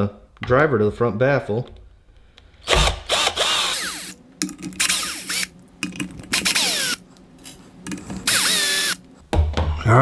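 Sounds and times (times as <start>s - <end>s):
power drill running: 2.7s - 4.2s, 4.8s - 5.5s, 6.3s - 7.0s, 8.2s - 9.0s.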